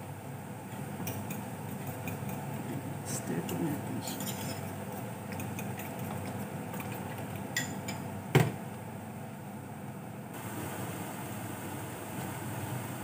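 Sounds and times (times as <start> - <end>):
spoon scraping ceramic bowl: 3.5 - 7.8.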